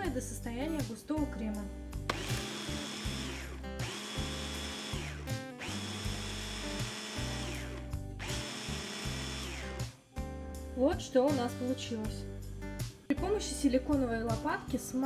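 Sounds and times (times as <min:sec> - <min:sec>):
mini chopper motor whining: 0:02.1 - 0:09.8.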